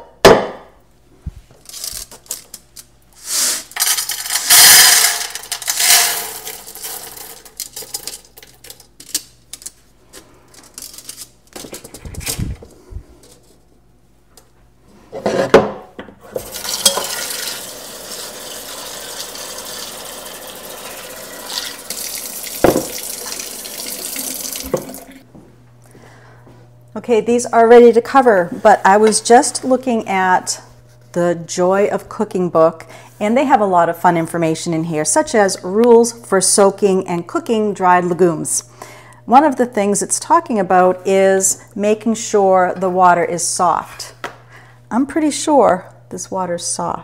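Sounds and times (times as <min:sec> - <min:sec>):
dried beans poured into pot: 0:03.2 - 0:08.6, 0:16.4 - 0:24.7
tap water running into pot: 0:16.3 - 0:25.2
cookware knocks: 0:22.6 - 0:23.0.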